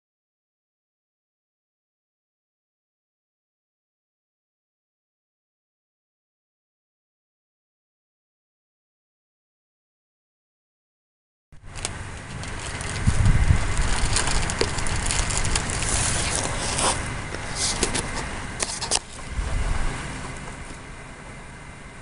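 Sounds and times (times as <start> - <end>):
wind rumbling on microphone: 11.6 - 20.6
crackling rustles: 11.6 - 21.0.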